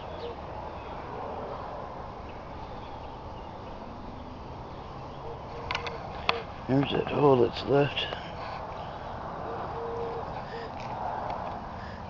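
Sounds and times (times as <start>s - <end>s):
distant bird chirps: 0.0s - 11.1s
low cooing: 5.2s - 6.5s, 9.4s - 10.8s.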